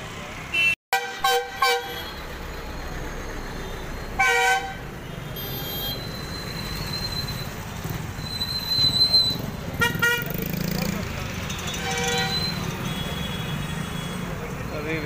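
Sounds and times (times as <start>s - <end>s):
bus passing: 0.0s - 15.0s
traffic rumble: 0.0s - 15.0s
vehicle horns honking: 0.5s - 2.2s, 4.2s - 6.2s, 9.2s - 10.5s, 11.6s - 14.4s.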